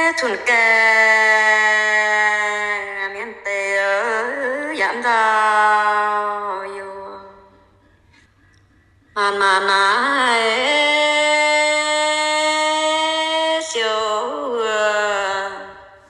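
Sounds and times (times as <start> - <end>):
person singing unaccompanied: 0.0 - 7.6, 9.2 - 15.8.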